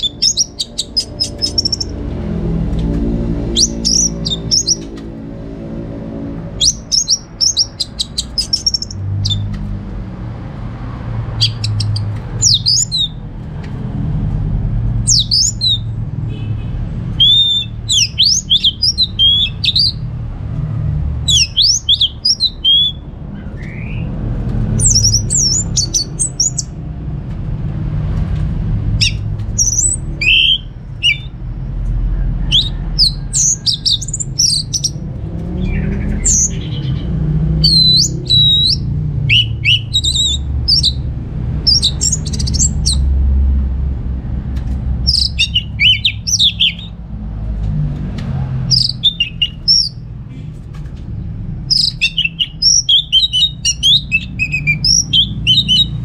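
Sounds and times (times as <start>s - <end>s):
bird singing whistles: 0.0s - 2.0s, 3.5s - 4.9s, 6.6s - 9.5s, 11.4s - 13.2s, 15.1s - 15.9s, 17.2s - 20.0s, 21.3s - 23.0s, 24.8s - 26.7s, 29.0s - 31.3s, 32.5s - 35.0s, 37.6s - 41.0s, 41.7s - 43.0s, 45.1s - 46.9s, 48.7s - 50.0s, 51.7s - 56.0s.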